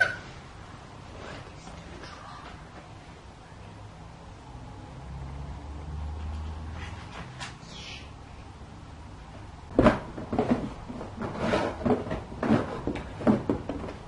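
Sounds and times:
knocks on cardboard box: 0:09.8 - 0:10.7.

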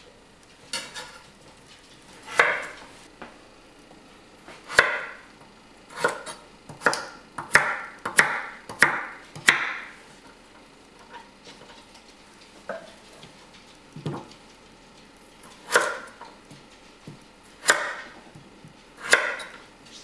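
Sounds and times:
knife chopping on wooden board: 0:02.3 - 0:02.8, 0:04.6 - 0:05.2, 0:05.9 - 0:10.0, 0:15.6 - 0:16.3, 0:17.0 - 0:19.6.

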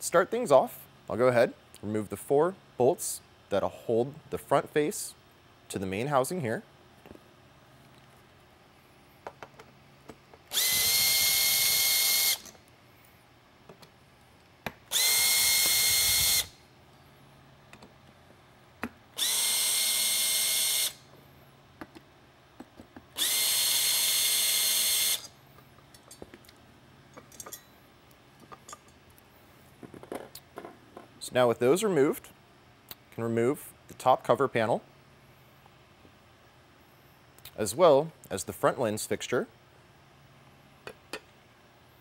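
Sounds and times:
cordless drill whining: 0:10.5 - 0:12.5, 0:14.9 - 0:16.6, 0:19.2 - 0:21.0, 0:23.2 - 0:25.3.

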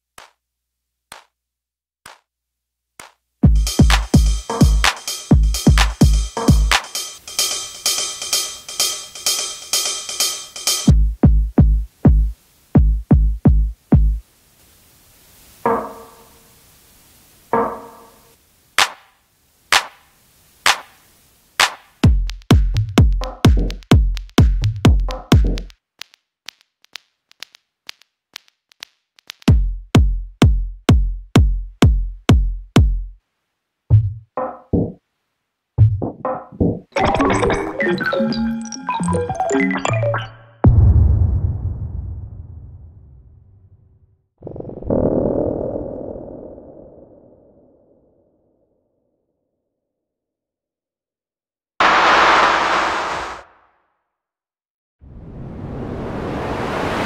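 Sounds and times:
drum machine kicks: 0:03.4 - 0:07.0, 0:10.4 - 0:14.2, 0:21.6 - 0:26.6, 0:27.4 - 0:33.2, 0:35.8 - 0:36.8, 0:40.6 - 0:41.4
looped electronic percussion: 0:03.4 - 0:14.2, 0:21.6 - 0:33.0.

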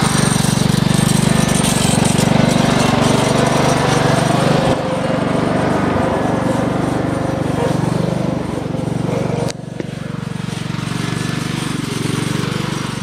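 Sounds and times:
lawn mower engine running: 0:00.0 - 0:13.0.

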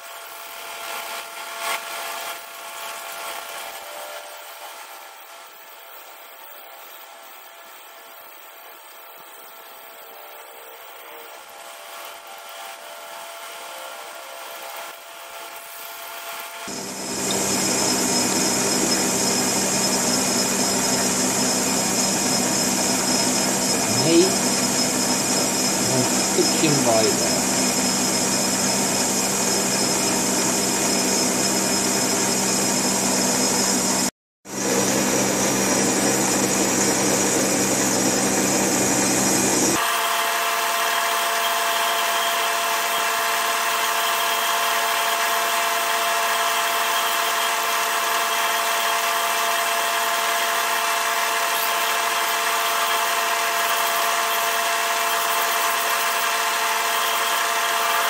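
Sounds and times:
metal lathe cutting: 0:16.6 - 0:58.0.

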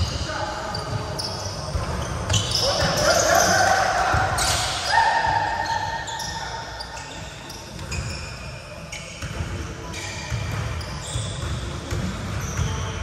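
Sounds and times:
sneaker squeaks: 0:00.0 - 0:13.0
basketball bouncing: 0:09.2 - 0:09.6, 0:10.3 - 0:12.9.

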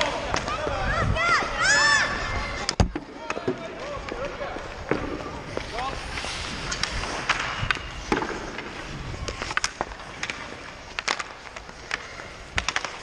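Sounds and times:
sticks and puck clacking: 0:00.0 - 0:01.7, 0:02.5 - 0:13.0
skates scraping on ice: 0:00.0 - 0:13.0.

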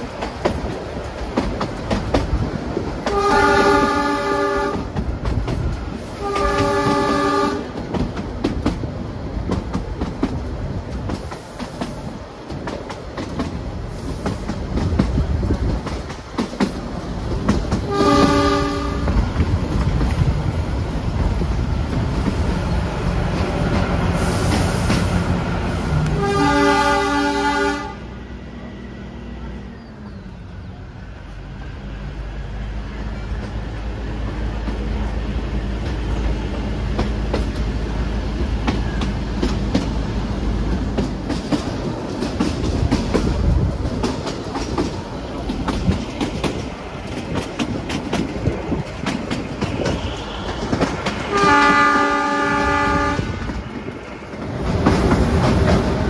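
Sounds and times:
train wheels clicking over rail joints: 0:00.0 - 0:26.4, 0:32.9 - 0:56.0
locomotive horn: 0:03.0 - 0:05.0, 0:06.2 - 0:07.8, 0:17.9 - 0:19.2, 0:26.0 - 0:28.2, 0:51.3 - 0:53.5.

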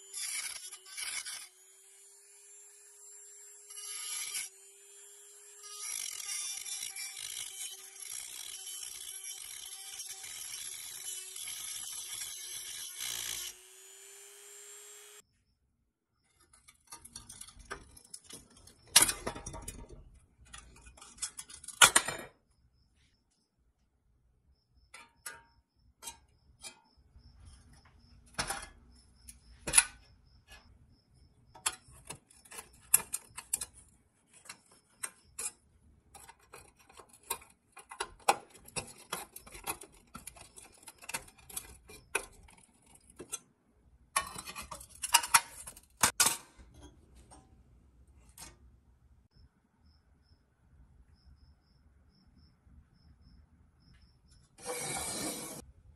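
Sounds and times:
rotary tool grinding steel: 0:00.0 - 0:15.2, 0:31.5 - 0:35.6, 0:36.2 - 0:43.4, 0:54.6 - 0:55.6
screwdriver scraping metal: 0:00.0 - 0:15.2, 0:16.3 - 0:21.9, 0:31.5 - 0:43.4, 0:44.2 - 0:46.2, 0:54.6 - 0:55.6.

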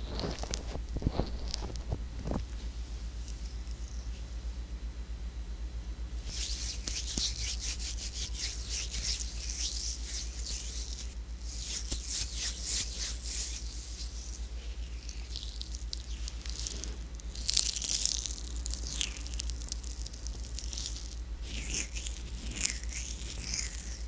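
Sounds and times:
hands rubbing near microphone: 0:06.2 - 0:17.0.

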